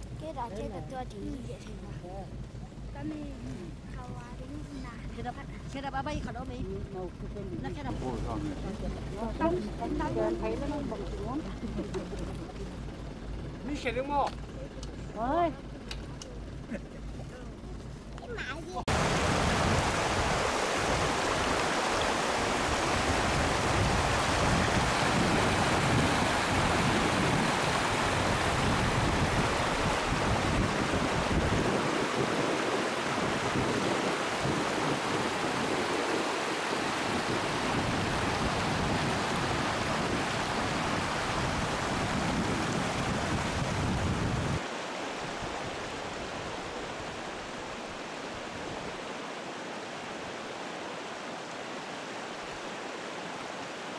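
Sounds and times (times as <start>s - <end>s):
wind rumbling on microphone: 0.0s - 13.6s, 18.9s - 49.2s
river flowing over stones: 18.6s - 53.9s.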